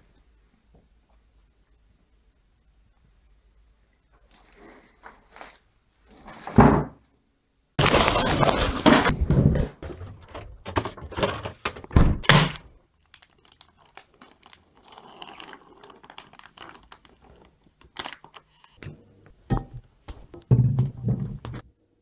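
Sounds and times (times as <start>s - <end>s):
kitchen knocks and thumps: 6.4s - 7.0s, 8.2s - 12.7s, 19.5s - 21.7s
plastic packet crinkling: 7.8s - 8.9s, 12.9s - 18.8s.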